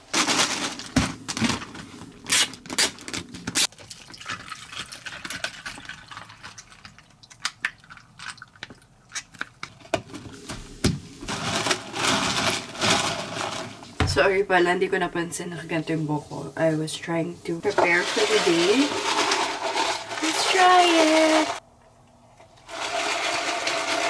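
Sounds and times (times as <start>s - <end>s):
plastic packaging clicks and rustling: 0.0s - 10.3s, 11.3s - 13.8s
drink poured over ice: 3.7s - 8.6s.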